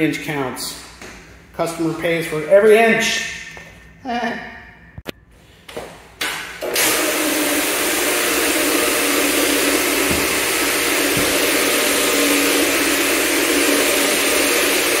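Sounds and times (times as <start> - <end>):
floor scrubbing machine running: 6.6 - 15.0.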